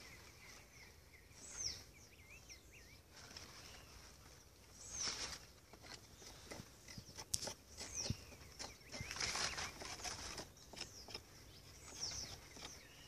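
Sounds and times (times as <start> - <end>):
birds whistling downward: 0.0 - 3.0
knife scraping branch: 4.8 - 13.0.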